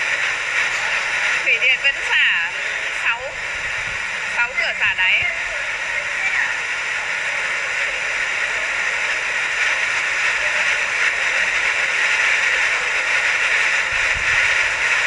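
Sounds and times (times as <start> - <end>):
water rushing: 0.1 - 9.4.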